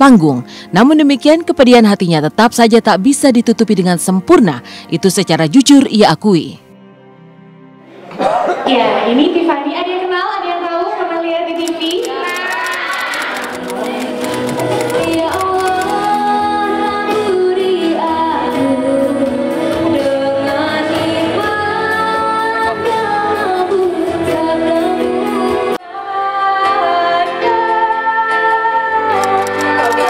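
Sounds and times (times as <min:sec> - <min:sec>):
woman singing over backing music: 0:15.0 - 0:30.0.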